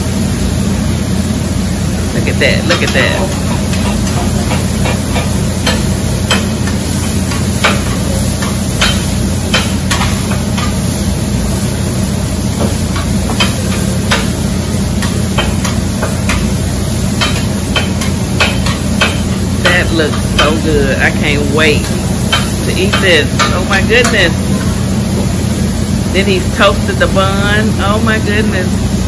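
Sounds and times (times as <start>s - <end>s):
meat sizzling: 3.0s - 26.1s.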